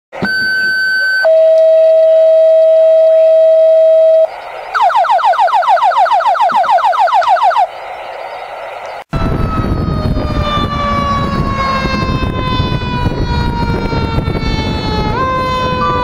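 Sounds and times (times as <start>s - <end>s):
fast falling beeps: 0.2s - 8.5s
radio dispatch tones: 0.2s - 9.8s.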